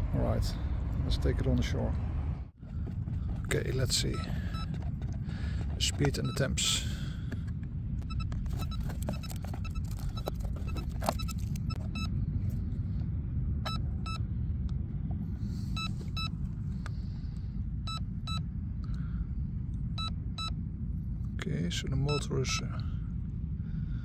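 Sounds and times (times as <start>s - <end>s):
low rumble: 0.0s - 24.0s
short electronic beeps: 4.1s - 4.8s, 6.1s - 6.6s, 8.0s - 12.2s, 15.7s - 16.4s, 20.0s - 20.6s.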